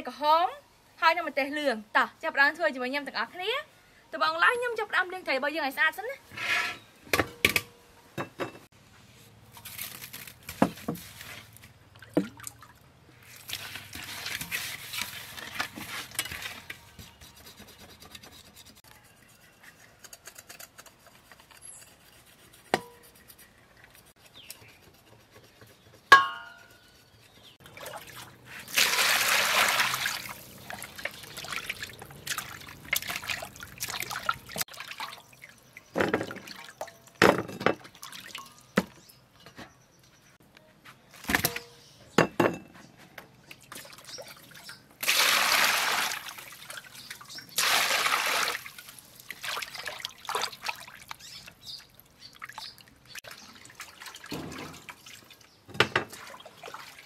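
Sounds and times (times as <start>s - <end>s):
water splashing in a bowl: 11.9s - 16.2s, 27.6s - 37.2s, 37.8s - 38.8s, 43.5s - 57.0s
knocks on steel bowl: 26.2s - 26.5s.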